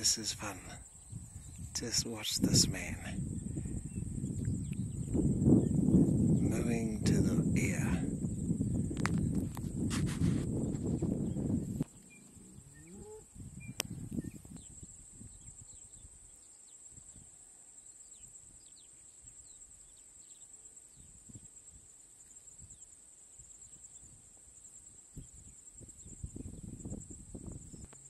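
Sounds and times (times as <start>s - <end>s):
wind gusts on microphone: 0.0s - 16.3s, 20.9s - 21.9s, 23.8s - 28.0s
faint bird chirps: 10.6s - 21.4s
distant bull mooing: 11.9s - 13.4s.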